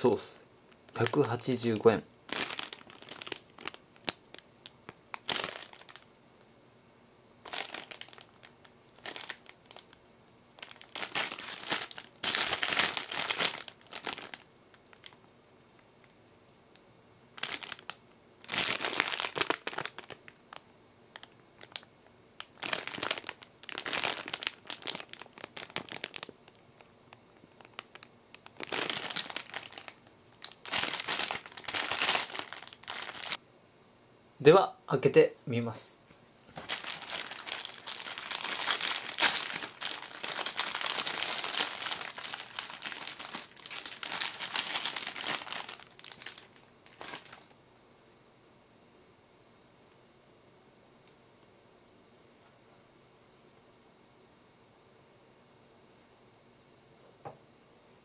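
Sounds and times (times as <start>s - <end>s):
plastic wrapper crinkling: 0.0s - 6.1s, 7.4s - 15.2s, 17.4s - 33.4s, 36.5s - 47.5s.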